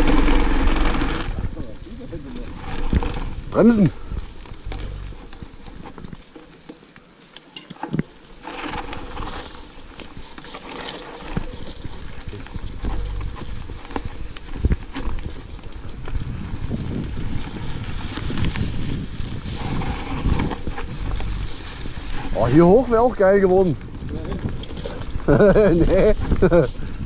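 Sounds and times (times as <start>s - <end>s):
bike knocks and rattles: 0.0s - 1.5s
low rumble: 2.4s - 5.3s, 11.8s - 13.9s, 16.4s - 23.1s.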